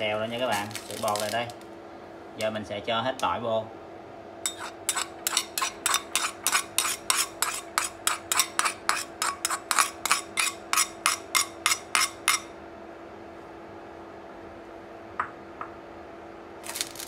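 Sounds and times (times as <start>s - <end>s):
metal spoon tapping bowl: 11.1s - 12.5s.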